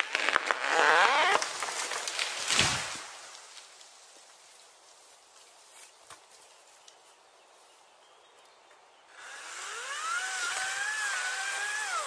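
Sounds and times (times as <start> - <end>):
electric chainsaw motor whine: 9.2 - 12.0.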